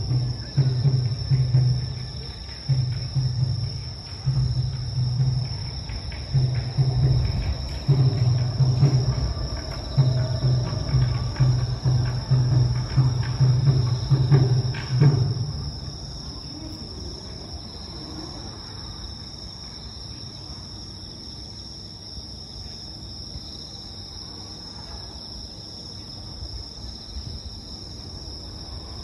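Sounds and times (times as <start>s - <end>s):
drum and music: 0.0s - 16.0s
crickets chirring: 0.0s - 29.0s.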